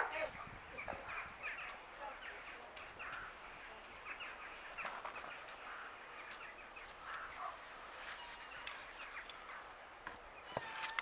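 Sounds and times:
crows cawing: 0:03.0 - 0:03.5, 0:04.1 - 0:08.2.

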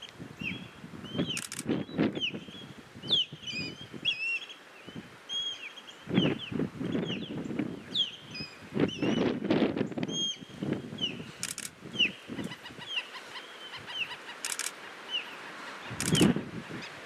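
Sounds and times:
wind rumbling on microphone: 0:00.1 - 0:04.2, 0:06.0 - 0:13.0, 0:15.8 - 0:17.0.

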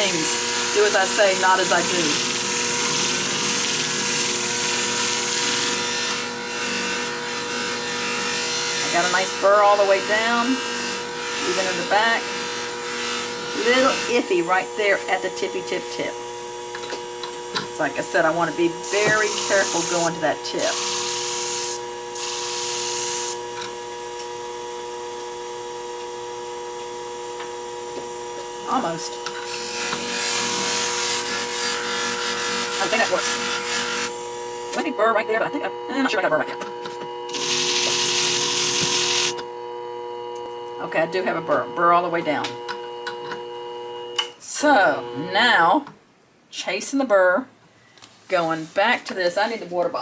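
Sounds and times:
blade grinding on abrasive disc: 0:00.0 - 0:16.0, 0:16.7 - 0:23.7, 0:28.7 - 0:35.0, 0:36.8 - 0:39.4
sharpening machine motor humming: 0:00.0 - 0:45.4.

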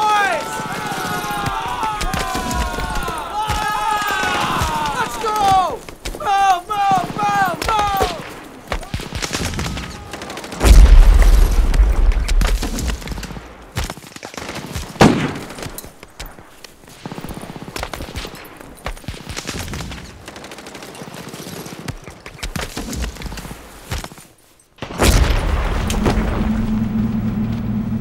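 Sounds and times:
gunfire volleys: 0:07.0 - 0:17.2
heavy low rumble: 0:10.6 - 0:13.2, 0:25.5 - 0:28.0
loud single gunshot: 0:10.6 - 0:13.2.

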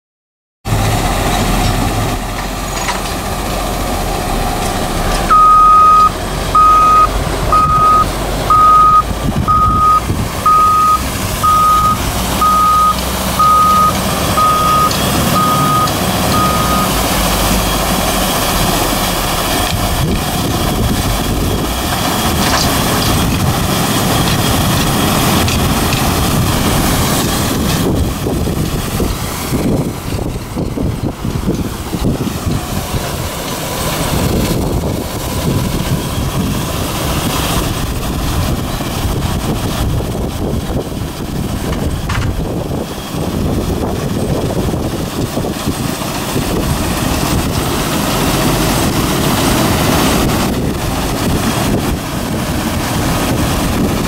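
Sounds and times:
wash plant machinery running: 0:00.7 - 0:54.0
reversing alarm beeping: 0:05.3 - 0:17.8.

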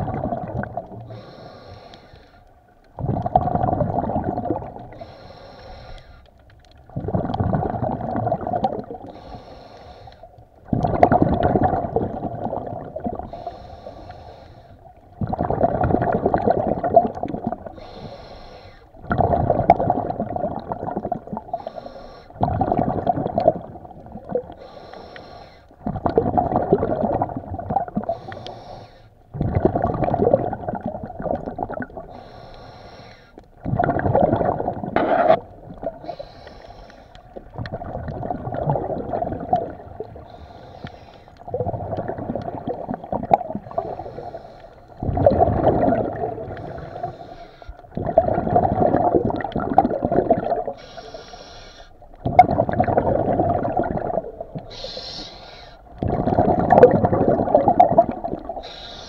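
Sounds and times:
exhaled bubbles underwater: 0:00.0 - 0:01.6, 0:02.6 - 0:05.2, 0:06.6 - 0:09.5, 0:10.2 - 0:18.3, 0:18.9 - 0:25.0, 0:25.7 - 0:32.6, 0:33.4 - 0:51.3, 0:52.0 - 0:59.0
regulator hissing inhales: 0:01.1 - 0:02.4, 0:05.0 - 0:06.2, 0:09.1 - 0:10.3, 0:13.3 - 0:14.8, 0:17.8 - 0:18.9, 0:21.6 - 0:22.4, 0:24.6 - 0:25.7, 0:28.1 - 0:29.1, 0:32.1 - 0:33.4, 0:36.0 - 0:37.2, 0:40.3 - 0:41.4, 0:43.7 - 0:44.9, 0:46.6 - 0:47.8, 0:50.8 - 0:52.0, 0:54.7 - 0:55.8, 0:58.6 - 0:59.0.

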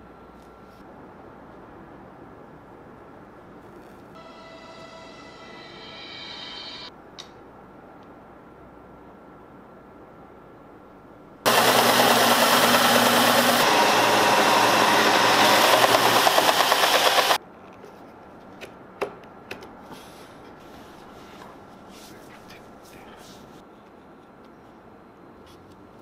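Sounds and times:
belt sander grinding wood: 0:11.5 - 0:17.4
motor hum: 0:11.5 - 0:17.4.

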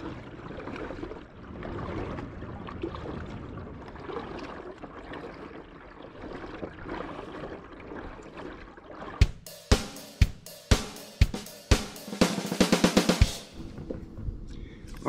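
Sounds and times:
splashing and trickling water: 0:00.0 - 0:09.6
paddle dipping into water: 0:00.0 - 0:10.4.

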